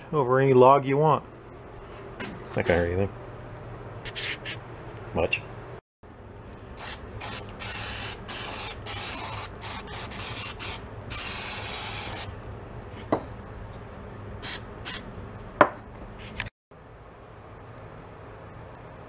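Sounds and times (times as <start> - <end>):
aerosol spray can hissing: 6.8 - 12.3.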